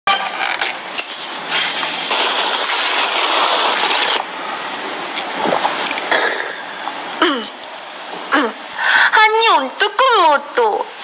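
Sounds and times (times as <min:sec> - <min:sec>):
person slurping noodles: 0:01.2 - 0:04.2.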